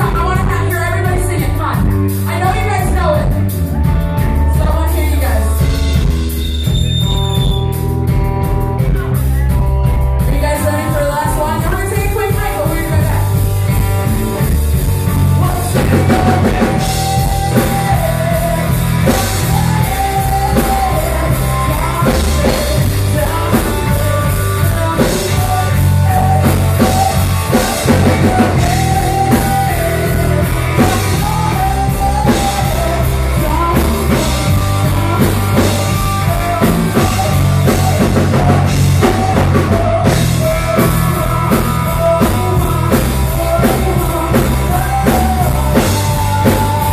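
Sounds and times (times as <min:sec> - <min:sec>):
person singing into microphone: 0:00.0 - 0:05.8, 0:10.2 - 0:13.4, 0:14.8 - 0:46.9
drum kit: 0:00.0 - 0:46.9
electric guitar: 0:00.0 - 0:46.9.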